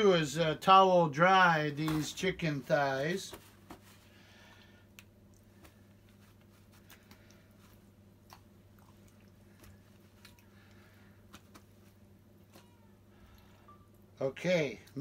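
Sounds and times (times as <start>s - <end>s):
steady low hum: 0.0s - 15.0s
paper towel rustling: 1.7s - 4.3s
wet squishy pats: 4.9s - 12.8s.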